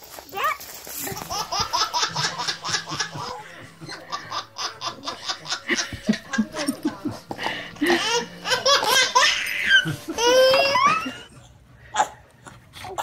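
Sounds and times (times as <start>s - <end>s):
baby laughing: 1.0s - 11.4s.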